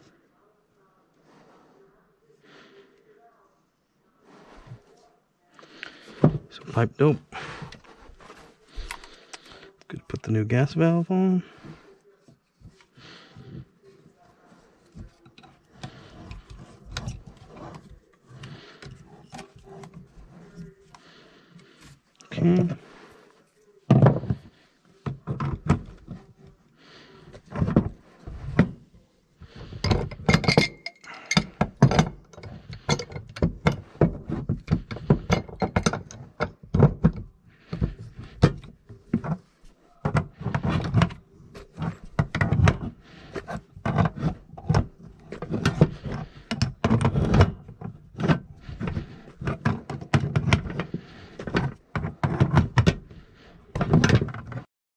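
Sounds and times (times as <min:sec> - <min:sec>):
wrench clanking on metal pipe: 0:29.8 - 0:33.8.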